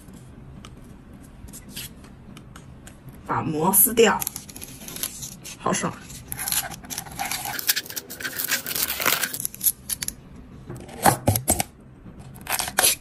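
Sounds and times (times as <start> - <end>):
plastic film peeling: 4.2 - 10.1.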